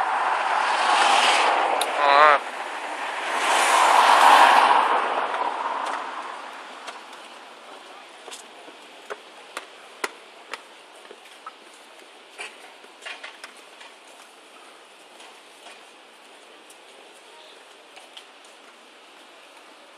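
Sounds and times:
car passing by: 0.0 - 7.6.

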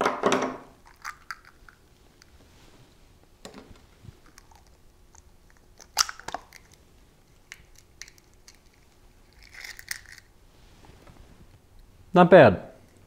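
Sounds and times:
eggshell cracking and crunching: 0.8 - 1.8, 4.3 - 10.4.

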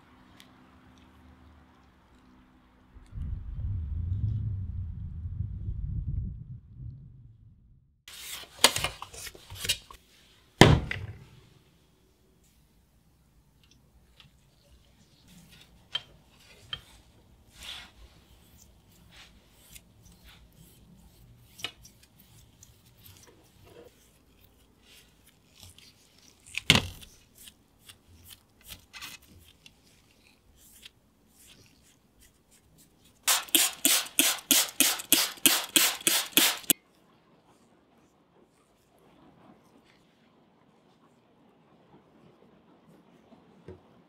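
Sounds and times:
spray bottle squirts: 33.3 - 36.7.

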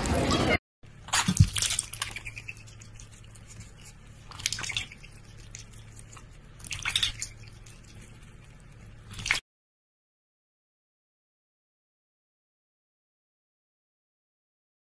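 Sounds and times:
duck splashing water in bowl: 1.0 - 9.4.

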